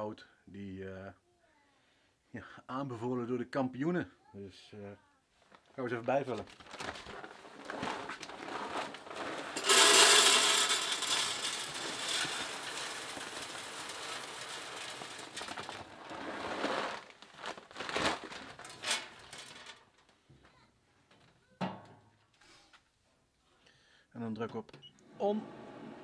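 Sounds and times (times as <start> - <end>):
wood pellets pouring into metal hopper: 6.8 - 19.8.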